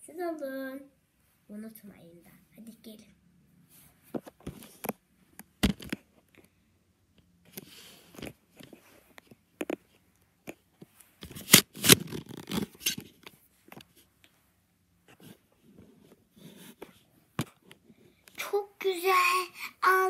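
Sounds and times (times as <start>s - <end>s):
plastic toys clicking and scraping: 11.2s - 13.2s.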